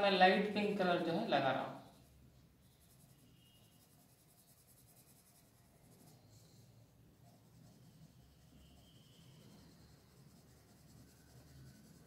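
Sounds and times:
pencil scratching on paper: 1.8s - 12.0s.

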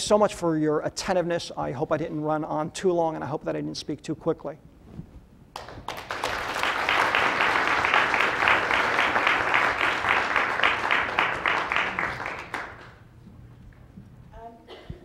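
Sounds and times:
audience applauding: 5.6s - 13.1s.

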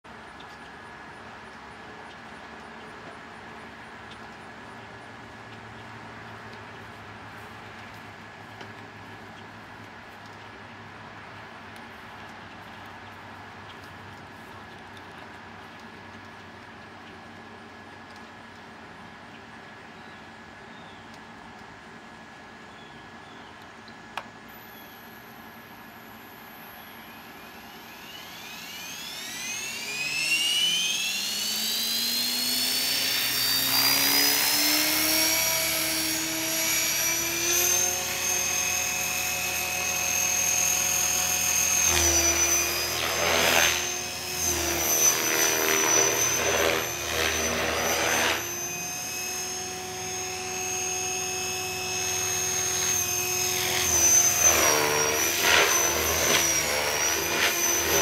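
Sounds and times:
model helicopter motor whine: 24.4s - 58.0s
rotor blades rushing: 24.5s - 58.0s.

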